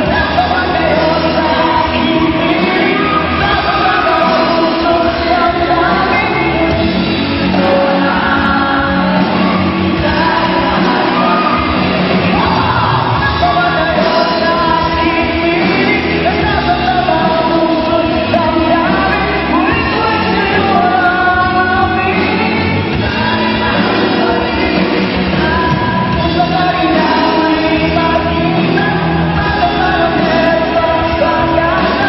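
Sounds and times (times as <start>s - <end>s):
live band playing: 0.0s - 32.0s
person singing: 0.0s - 32.0s.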